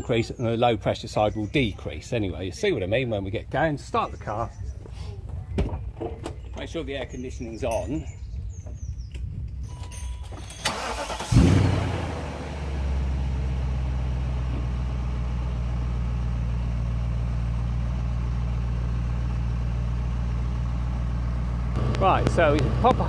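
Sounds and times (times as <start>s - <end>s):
starter motor cranking: 10.4s - 11.6s
car engine starting and idling: 10.4s - 23.0s.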